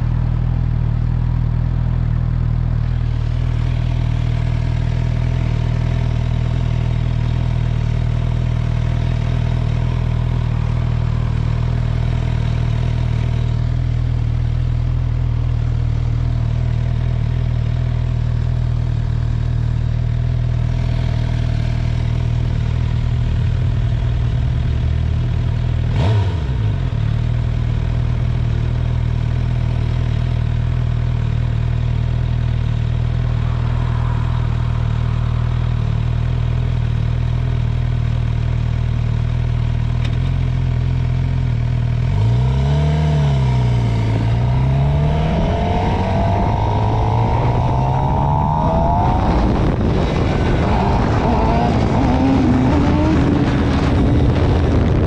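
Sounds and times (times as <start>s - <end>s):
motorcycle engine idling: 0.0s - 25.9s, 26.8s - 42.2s
sharp sound falling in pitch: 32.7s - 37.6s, 43.8s - 52.4s.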